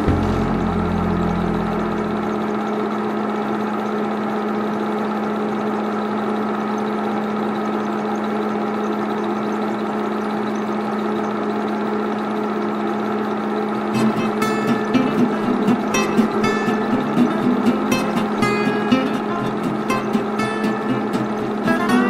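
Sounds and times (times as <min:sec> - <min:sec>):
projector motor hum: 0:00.0 - 0:22.0
film clattering through projector: 0:03.4 - 0:22.0.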